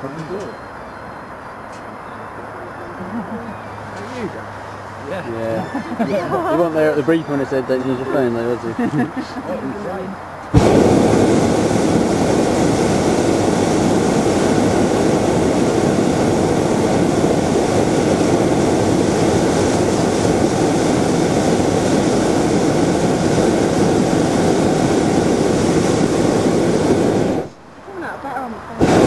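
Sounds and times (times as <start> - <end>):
propane burner firing: 10.5 - 27.6, 28.8 - 29.0.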